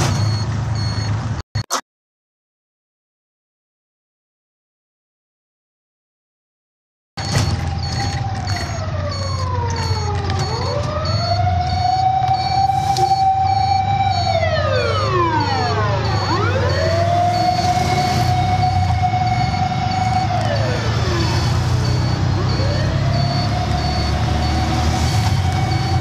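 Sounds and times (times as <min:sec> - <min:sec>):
siren wailing: 0:07.2 - 0:26.0.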